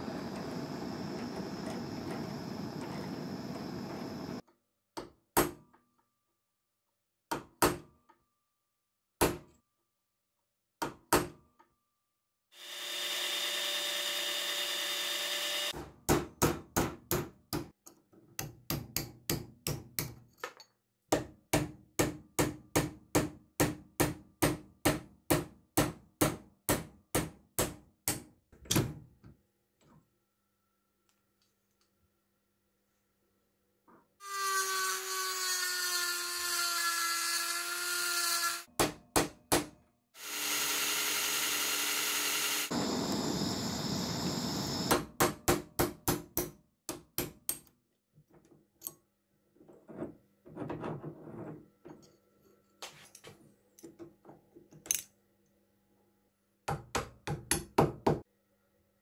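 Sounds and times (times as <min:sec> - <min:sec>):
gas torch hissing: 0:00.0 - 0:04.4, 0:42.7 - 0:44.9.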